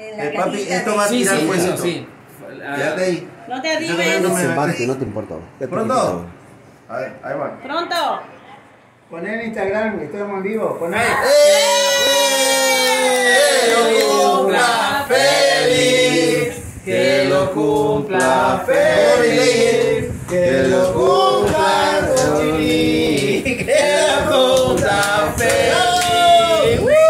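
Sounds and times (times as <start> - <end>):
group singing: 12.7 - 26.8
hand clapping: 20.3 - 26.7.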